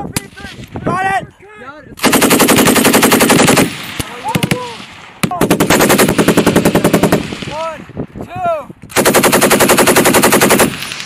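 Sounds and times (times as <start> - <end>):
machine gun bursts: 2.0 - 3.8, 5.4 - 7.2, 9.0 - 10.8.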